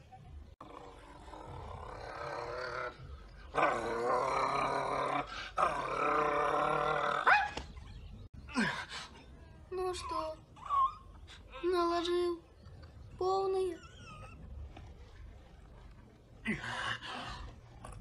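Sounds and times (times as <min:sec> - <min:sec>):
boy growling through teeth: 0:00.6 - 0:07.3.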